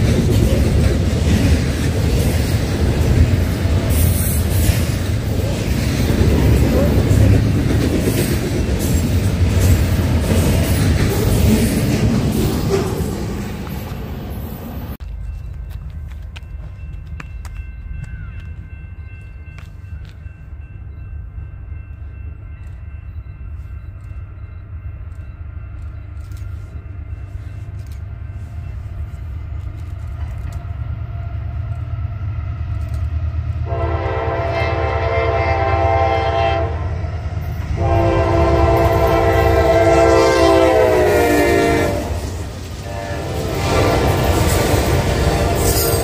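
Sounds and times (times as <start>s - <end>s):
diesel locomotive engines rumbling: 0.0s - 46.0s
freight train passing: 0.0s - 46.0s
train air horn blasts: 33.6s - 37.0s, 37.7s - 46.0s.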